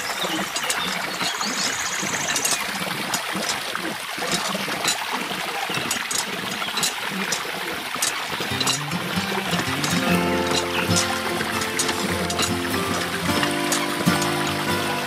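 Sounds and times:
water stream splashing into pool: 0.0s - 15.0s.

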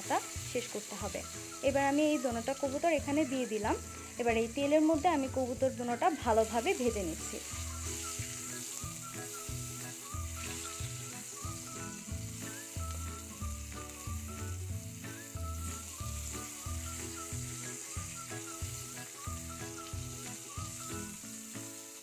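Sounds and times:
background music with bass: 0.0s - 21.2s
meat sizzling in a pan: 0.0s - 22.0s
spatula turning food: 5.2s - 21.3s.

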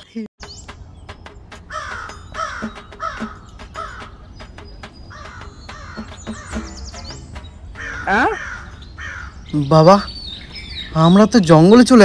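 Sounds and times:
high bird chirps: 0.4s - 11.8s
crows cawing: 1.7s - 4.4s, 5.1s - 6.8s, 7.7s - 9.5s.

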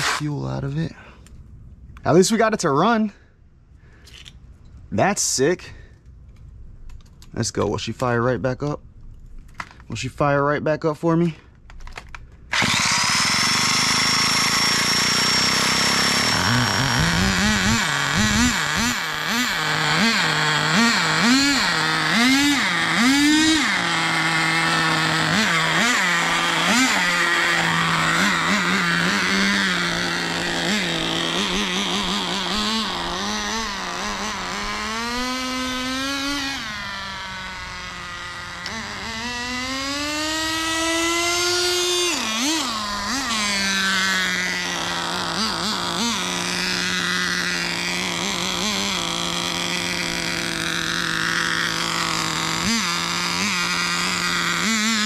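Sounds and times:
small engine revving: 0.0s - 0.7s, 12.5s - 55.0s
high steady whine: 12.5s - 55.0s.

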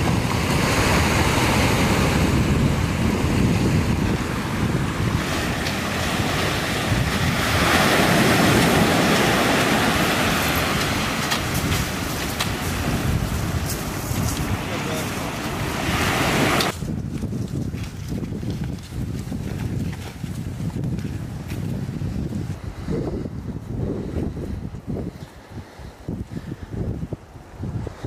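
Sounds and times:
surf breaking on beach: 0.0s - 17.0s
wind buffeting microphone: 0.0s - 28.0s.

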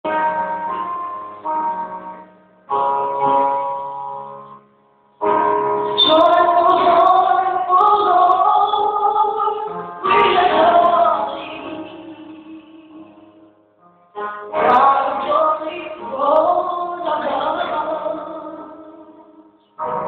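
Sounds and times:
keyboard chords: 0.0s - 20.0s
woman singing: 6.0s - 13.5s, 14.2s - 19.5s.

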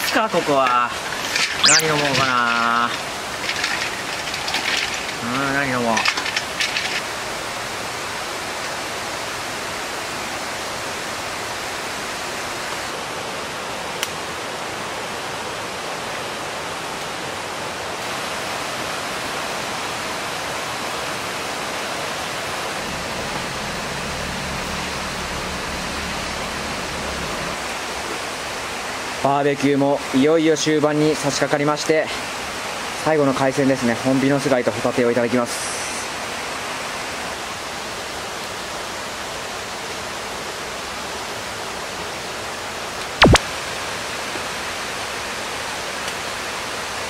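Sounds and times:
ice and cans clattering in cooler: 0.0s - 7.2s
steady rushing water: 0.0s - 47.0s.

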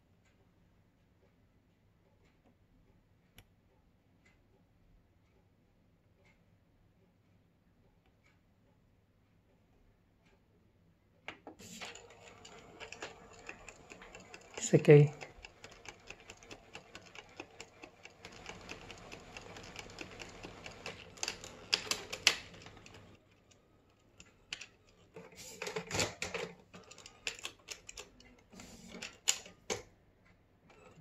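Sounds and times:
printer motor hiss with ticking: 11.6s - 25.8s
printer gears clicking and clattering: 11.6s - 29.9s, 30.7s - 31.0s.

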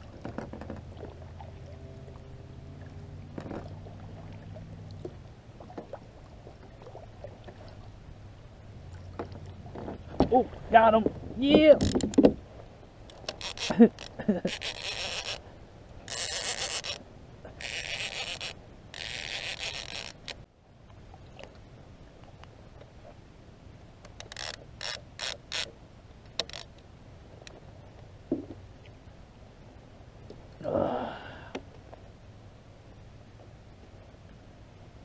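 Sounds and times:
fishing reel cranking: 13.1s - 15.4s, 16.1s - 17.0s, 17.6s - 20.4s, 24.1s - 25.7s, 26.4s - 26.7s.

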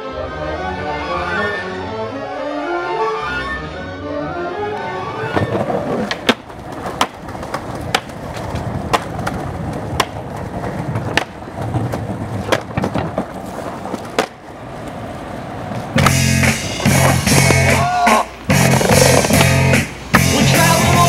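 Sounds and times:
skateboard wheels rolling on concrete: 4.0s - 21.0s
skateboard clacking on curb: 5.2s - 21.0s.

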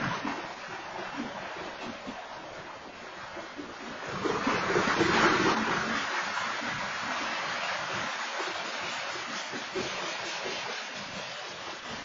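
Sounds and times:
train wheels rolling on rail: 6.0s - 12.0s.

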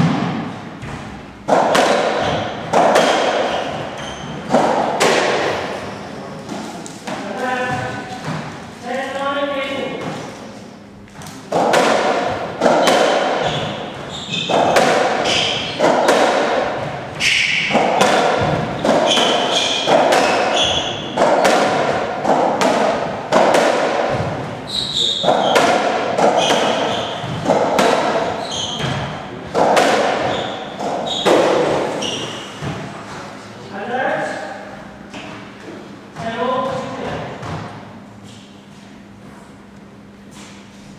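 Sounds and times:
racket striking rubber ball: 0.0s - 5.9s, 11.2s - 32.9s.

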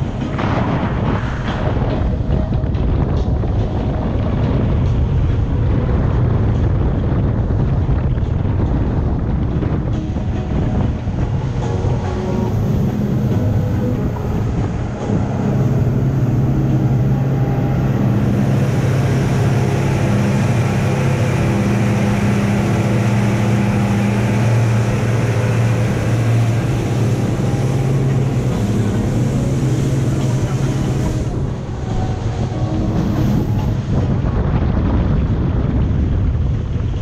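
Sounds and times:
outboard motors droning: 0.0s - 37.0s
wind and water spray rushing: 0.0s - 37.0s.

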